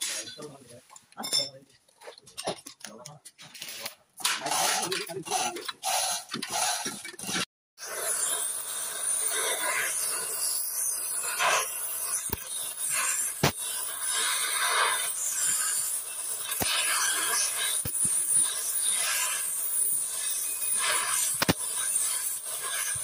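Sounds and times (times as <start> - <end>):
gas torch hissing: 7.8 - 23.0.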